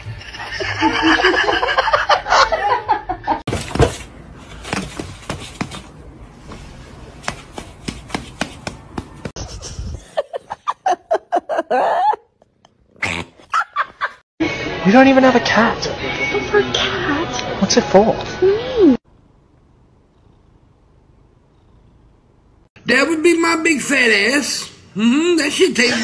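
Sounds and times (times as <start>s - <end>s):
people laughing: 0.4s - 3.4s, 10.0s - 12.2s.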